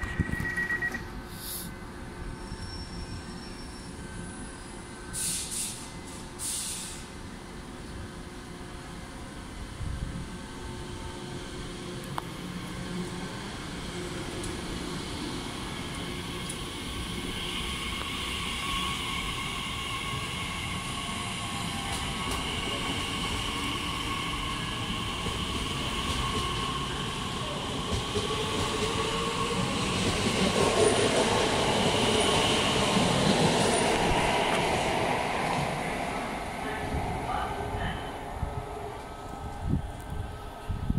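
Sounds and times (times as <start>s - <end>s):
train high whine: 0.0s - 40.9s
train wheels rumbling on rails: 9.7s - 40.9s.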